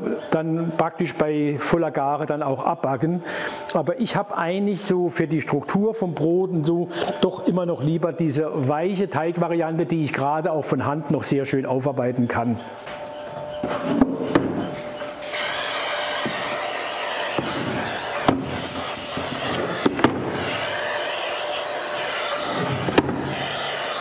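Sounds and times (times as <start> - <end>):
aerosol spray hissing: 15.2 - 24.0.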